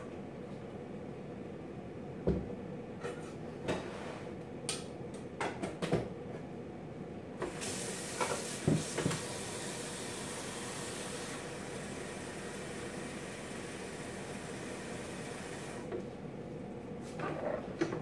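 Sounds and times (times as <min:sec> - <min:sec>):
steady hiss: 0:07.4 - 0:15.9.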